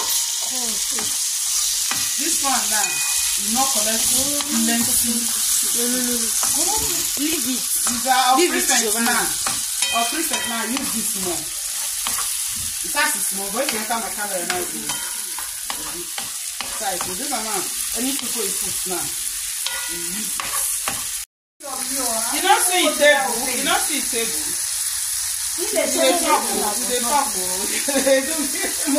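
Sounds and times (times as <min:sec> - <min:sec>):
food sizzling in frying pan: 0:00.0 - 0:28.9
wooden spatula scraping: 0:00.9 - 0:12.8.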